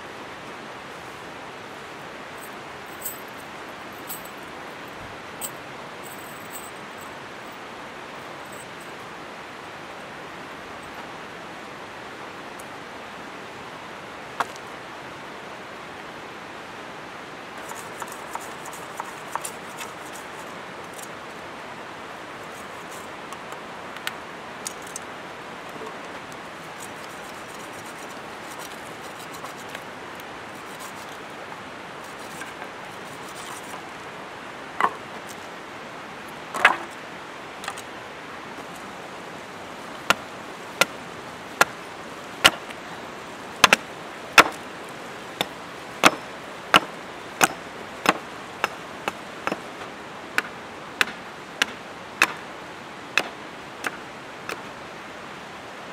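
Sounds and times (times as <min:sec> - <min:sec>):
river water rushing: 0:00.0 - 0:55.9
wooden knocks: 0:34.8 - 0:35.0
hatchet chopping wood: 0:42.4 - 0:42.7, 0:43.6 - 0:44.6, 0:45.4 - 0:49.7, 0:50.4 - 0:52.4, 0:53.2 - 0:54.6
sticks knocking on pebbles: 0:45.4 - 0:49.6.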